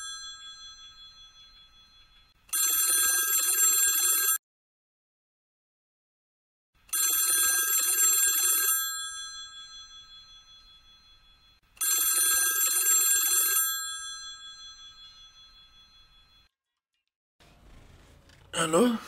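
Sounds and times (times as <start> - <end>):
mobile phone bell ringtone: 0.0 - 4.4, 6.9 - 16.5.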